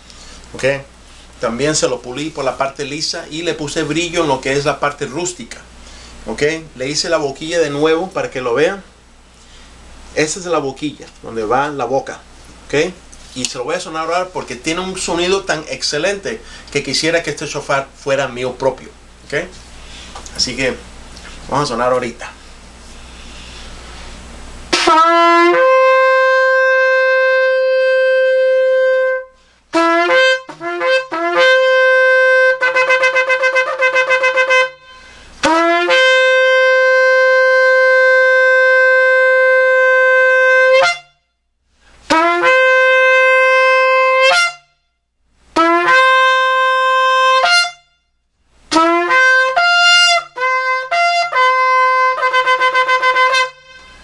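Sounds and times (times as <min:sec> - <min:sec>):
shofar blasts: 0:24.7 - 0:41.3, 0:42.1 - 0:54.0.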